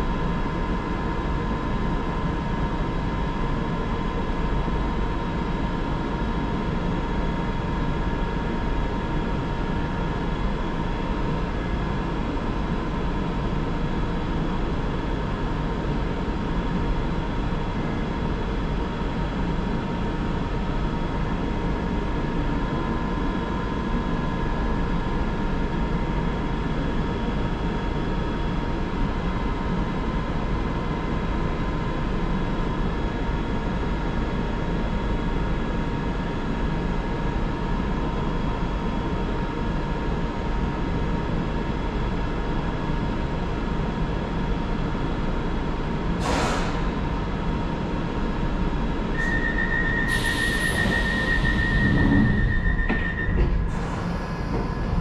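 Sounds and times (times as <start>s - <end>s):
train equipment humming: 49.1s - 55.0s.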